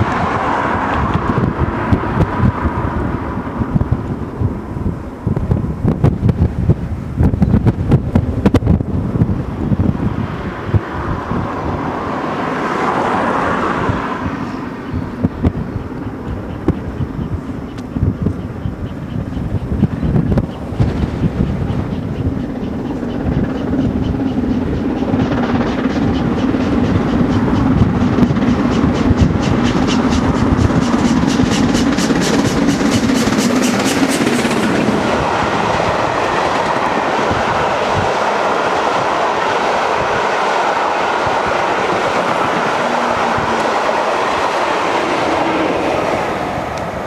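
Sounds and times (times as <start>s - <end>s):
train coaches rolling on rails: 0.0s - 47.0s
steam locomotive rhythmic beat: 21.5s - 46.9s.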